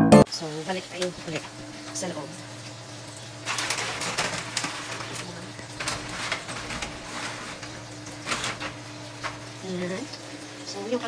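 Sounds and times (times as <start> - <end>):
objects rustling and clattering: 3.4 - 9.6.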